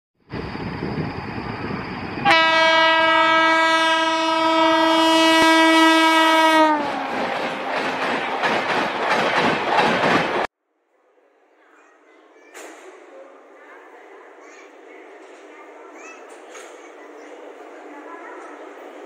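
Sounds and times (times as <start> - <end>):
passing train rushing: 0.2 - 10.5, 12.5 - 19.0
locomotive horn blast: 2.2 - 7.0.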